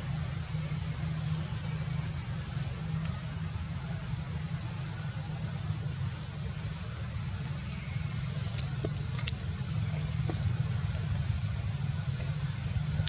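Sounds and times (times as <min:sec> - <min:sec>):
low outdoor rumble: 0:00.0 - 0:13.0.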